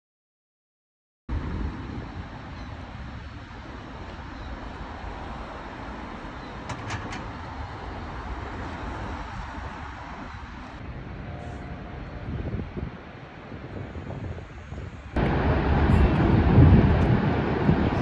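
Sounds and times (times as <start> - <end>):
waterfall roaring: 15.2 - 18.0.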